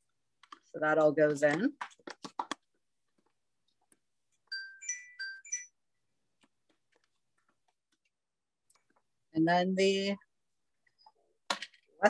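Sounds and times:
electronic alert chime: 4.5s - 5.8s.

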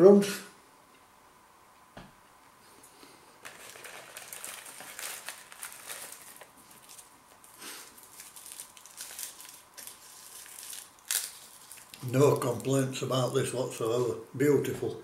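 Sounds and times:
seaweed crackling and crinkling: 3.4s - 13.4s.

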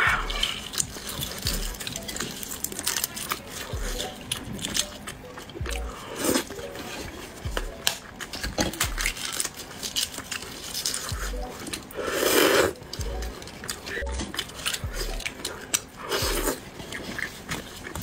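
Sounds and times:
egg shells cracking: 0.0s - 12.0s, 12.7s - 18.0s
soft low thumps: 5.6s - 5.9s.

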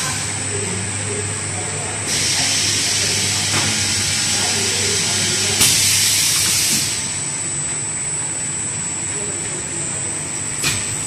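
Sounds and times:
conveyor drive hum: 0.0s - 11.0s
machinery air hiss: 2.0s - 7.1s.

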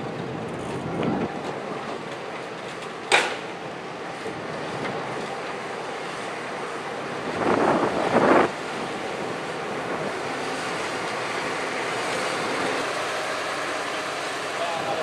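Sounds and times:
wind noise on microphone: 0.0s - 1.6s, 7.0s - 10.8s
train rolling past: 0.0s - 15.0s.

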